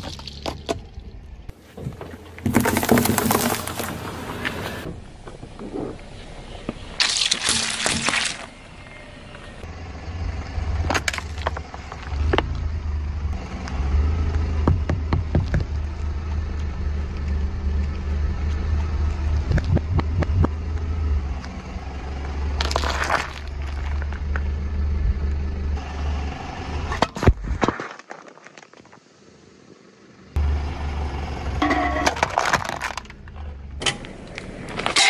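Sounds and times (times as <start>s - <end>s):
tyre crushing objects: 0.0s - 1.0s, 1.6s - 4.8s, 22.6s - 24.2s, 31.8s - 33.2s
car rumbling: 0.0s - 27.7s, 28.6s - 35.0s.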